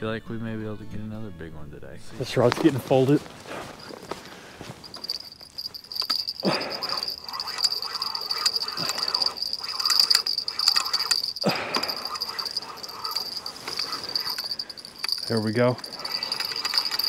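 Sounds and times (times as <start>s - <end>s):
fishing reel gear whine: 4.9s - 17.0s.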